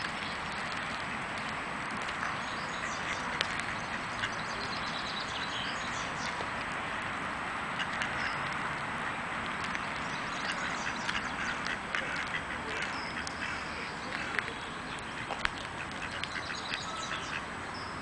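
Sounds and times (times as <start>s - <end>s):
ducks quacking: 2.7s - 4.5s, 10.4s - 17.5s.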